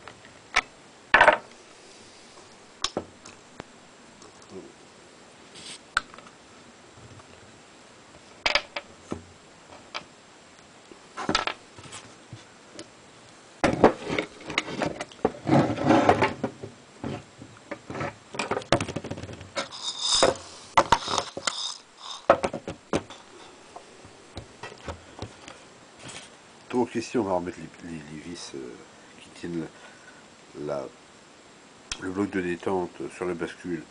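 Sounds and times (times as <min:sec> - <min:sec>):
rubbing and clattering: 0:13.6 - 0:23.3
metal parts clicking on wood: 0:20.9 - 0:22.3.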